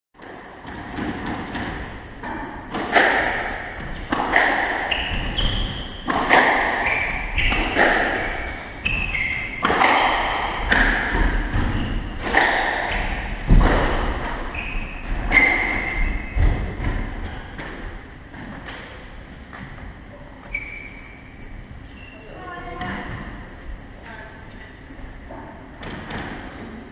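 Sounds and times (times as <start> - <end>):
squash ball hitting racquets and walls: 0.2 - 21.0, 22.7 - 23.6, 25.7 - 26.9
shoes squeaking on wooden floor: 4.9 - 6.1, 6.7 - 9.7, 14.0 - 17.4, 20.4 - 21.2.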